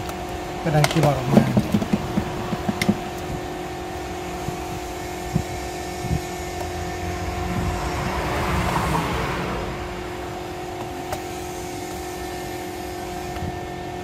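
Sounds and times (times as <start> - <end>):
steady background hum: 0.0 - 14.0
broad rumble: 4.4 - 11.1.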